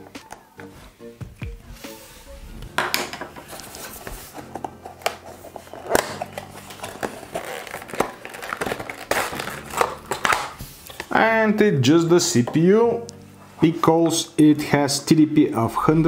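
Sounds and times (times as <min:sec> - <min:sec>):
cardboard box rustling and scraping: 0:01.8 - 0:09.8.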